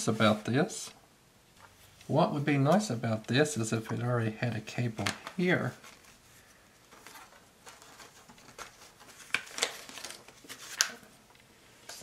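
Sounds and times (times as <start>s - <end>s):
rustling: 5.0s - 12.0s.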